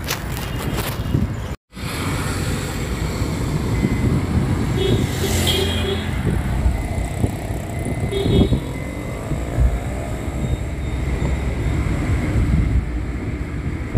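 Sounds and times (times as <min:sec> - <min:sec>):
wind noise at window: 0:11.2 - 0:13.9.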